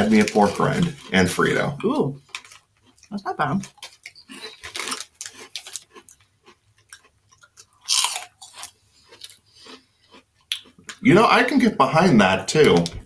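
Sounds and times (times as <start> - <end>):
plastic bag crinkling: 0.0 - 1.3, 3.6 - 6.2
crunchy snack being chewed: 2.2 - 11.0.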